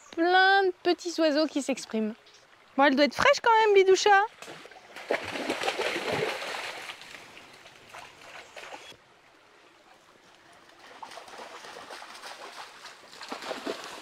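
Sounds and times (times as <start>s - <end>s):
faint stream trickle: 0.0s - 14.0s
dog splashing in water: 4.4s - 8.9s, 10.8s - 14.0s.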